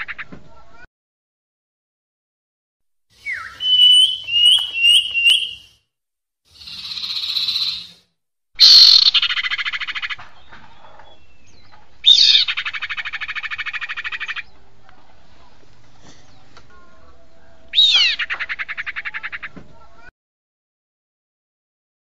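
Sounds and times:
hissing bird note: 3.2 - 5.8, 6.5 - 8.0
rising whistled bird notes: 3.2 - 5.8.

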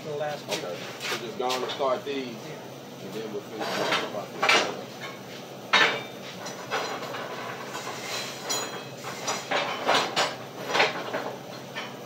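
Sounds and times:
metal clanks and crackles: 3.6 - 12.0.

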